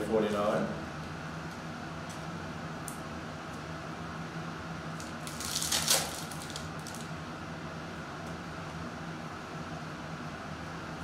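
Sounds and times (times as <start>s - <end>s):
steady background hum: 0.0s - 11.0s
foil wrapper tearing: 5.0s - 7.1s.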